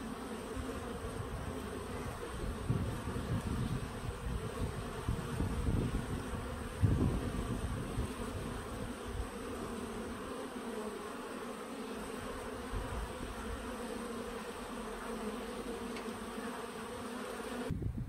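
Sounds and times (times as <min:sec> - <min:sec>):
honeybees humming: 0:00.0 - 0:17.7.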